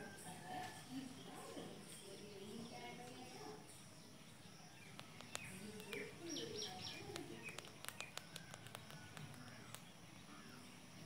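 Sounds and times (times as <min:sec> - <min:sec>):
birds chirping: 0:00.0 - 0:11.0
sharp little clicks: 0:04.8 - 0:09.9.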